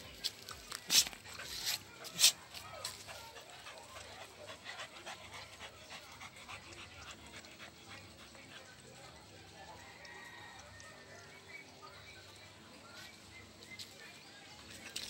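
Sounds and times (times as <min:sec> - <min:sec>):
dogs panting: 0:00.1 - 0:09.5.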